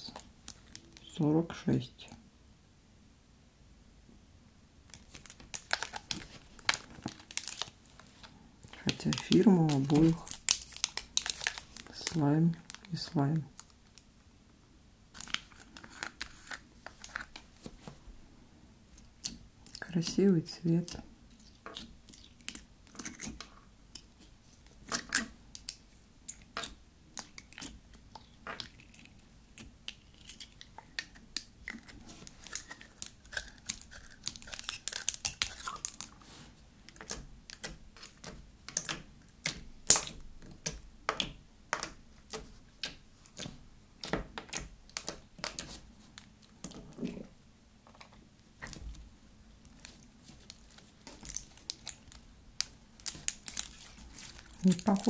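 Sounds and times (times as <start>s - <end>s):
slime clicking and popping: 36.9s - 45.6s.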